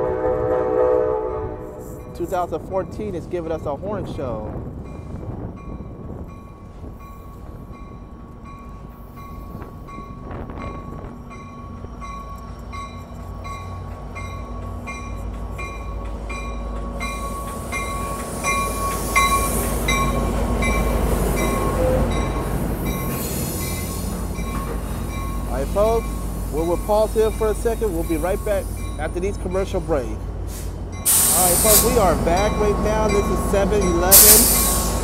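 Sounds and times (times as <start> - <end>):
train engine and wheels rumbling: 0.0 - 35.0
locomotive bell ringing: 4.9 - 30.2, 30.9 - 34.8.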